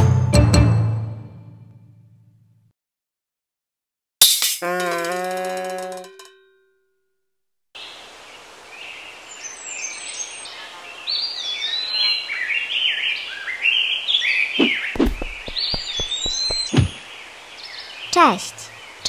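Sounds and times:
small birds chirping: 0:07.8 - 0:19.0
low thumps: 0:15.0 - 0:17.0.

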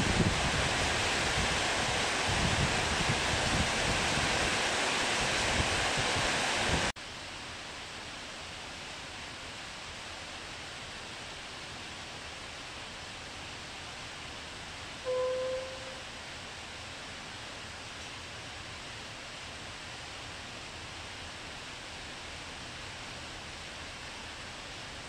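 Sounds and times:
wind buffeting microphone: 0:00.0 - 0:06.9
heavy rain pouring: 0:00.0 - 0:25.0.

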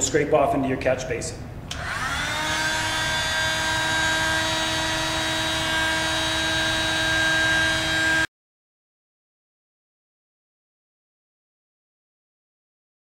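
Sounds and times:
heat gun fan whining: 0:01.6 - 0:08.3.

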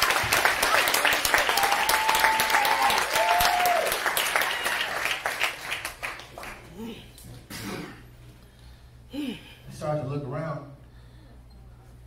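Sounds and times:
audience applauding: 0:00.0 - 0:06.8
drawn-out cheers: 0:01.3 - 0:05.0.

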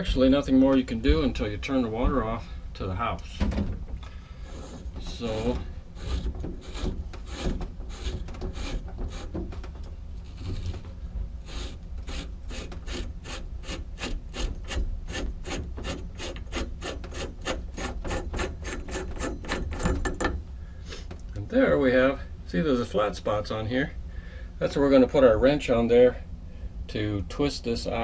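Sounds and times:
metal scraping on threads: 0:04.4 - 0:09.4.

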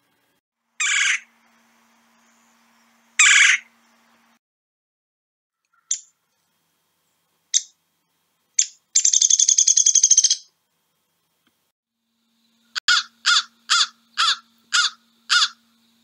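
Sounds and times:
woodpecker rolling churr call: 0:00.8 - 0:01.3, 0:03.2 - 0:03.7, 0:12.6 - 0:15.7.

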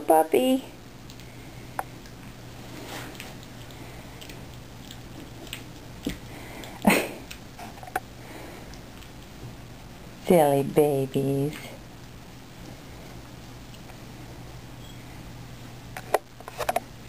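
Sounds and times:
puppies play-fighting: 0:01.1 - 0:09.8.

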